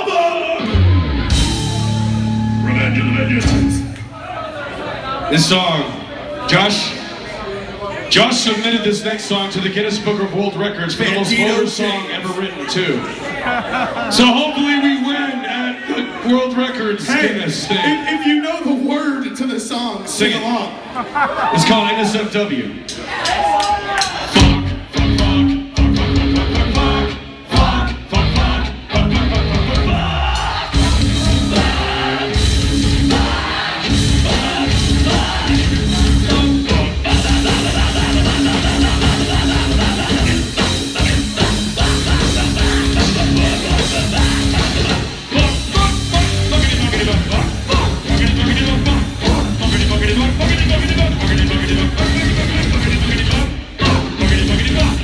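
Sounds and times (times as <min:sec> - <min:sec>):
heavy metal band playing: 0:00.0 - 0:04.0, 0:24.4 - 0:55.0.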